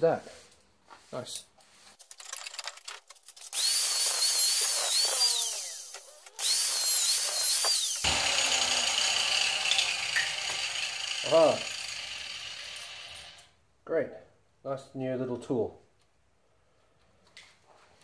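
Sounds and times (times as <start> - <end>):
angle grinder cutting metal: 3.5 - 13.5.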